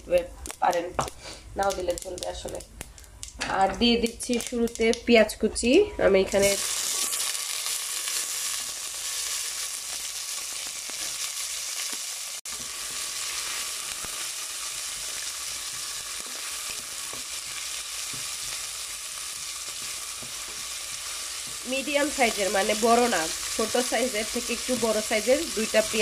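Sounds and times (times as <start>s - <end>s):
onions sizzling in oil: 6.4s - 26.0s.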